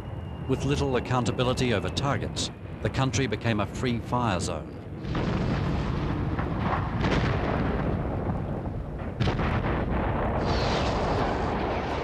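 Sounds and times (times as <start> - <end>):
explosions rumbling: 4.9 - 12.0
sharp explosion blast: 5.0 - 12.0.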